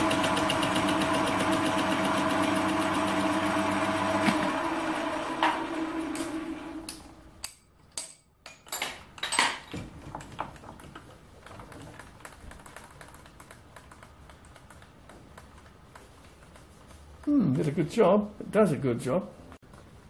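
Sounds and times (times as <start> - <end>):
lathe spinning down: 0.0 - 7.1
metallic clinks and knocks: 7.4 - 12.0.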